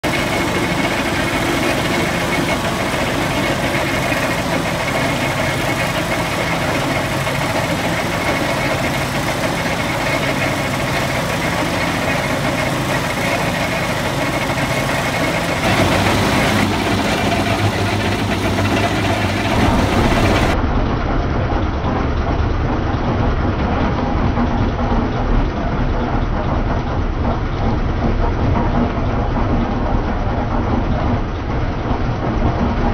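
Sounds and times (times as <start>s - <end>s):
concrete mixer churning: 0.0s - 20.6s.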